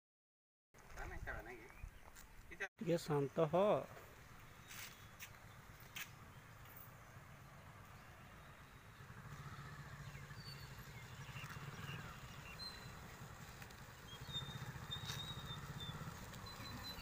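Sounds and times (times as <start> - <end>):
motorcycle engines running: 3.6 - 17.0.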